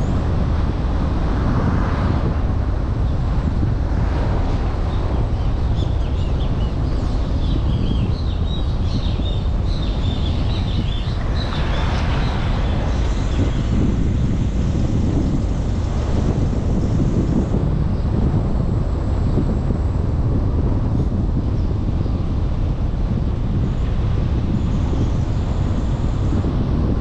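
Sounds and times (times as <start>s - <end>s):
car wind and road noise: 0.0s - 27.0s
birds chirping: 5.4s - 14.0s.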